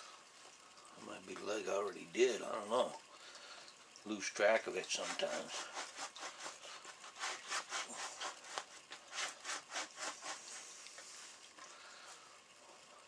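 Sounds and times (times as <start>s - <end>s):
hide rubbing over wooden beam: 4.8s - 11.4s.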